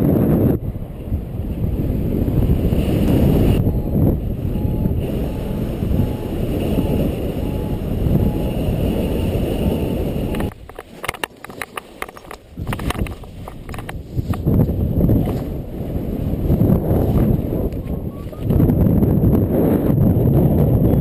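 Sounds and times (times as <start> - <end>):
wind buffeting microphone: 0.0 - 21.0
faint short beeps: 3.6 - 8.5.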